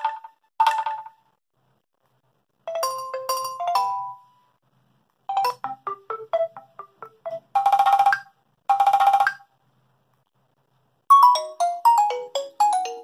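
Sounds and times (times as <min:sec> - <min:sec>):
ringtone previews on small loudspeaker: 0:05.3 - 0:09.4, 0:11.1 - 0:13.0.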